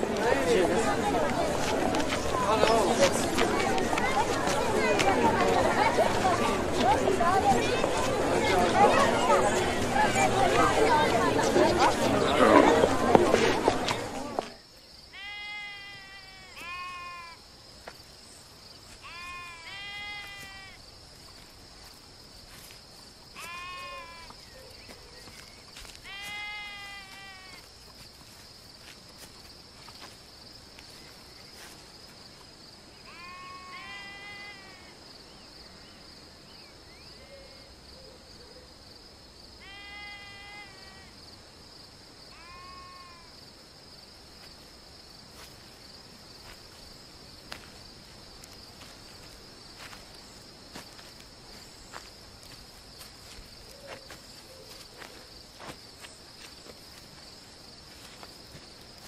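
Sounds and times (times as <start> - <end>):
crickets chirring: 0.0 - 59.0
sheep bleating: 15.1 - 17.4, 19.0 - 20.8, 23.4 - 24.3, 26.0 - 27.6, 33.0 - 35.0, 39.6 - 41.1, 42.3 - 43.3.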